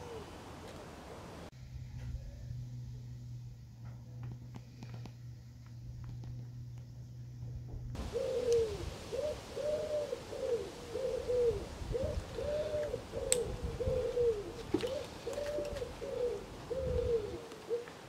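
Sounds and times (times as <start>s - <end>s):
pigeon cooing: 0.0s - 0.9s, 8.0s - 17.9s.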